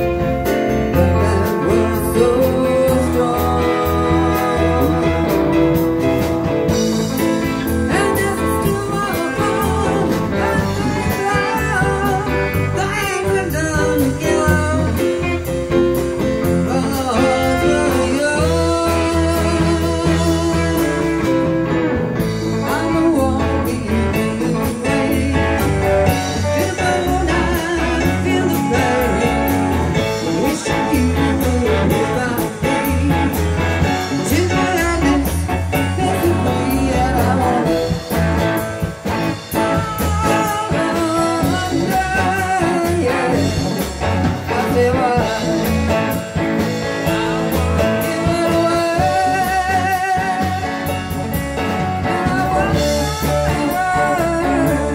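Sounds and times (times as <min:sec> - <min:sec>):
electric guitar: 0:00.0 - 0:54.9
stage piano: 0:00.0 - 0:54.9
woman singing into a microphone: 0:01.0 - 0:05.5, 0:07.7 - 0:15.3, 0:16.5 - 0:21.4, 0:22.2 - 0:38.2, 0:39.4 - 0:46.2, 0:47.6 - 0:51.2, 0:52.0 - 0:54.9.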